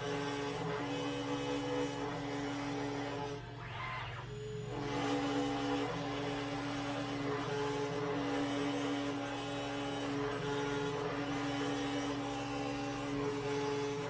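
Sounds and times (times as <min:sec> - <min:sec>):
router spindle humming: 0:00.0 - 0:14.0
stepper motors whining: 0:03.4 - 0:05.9.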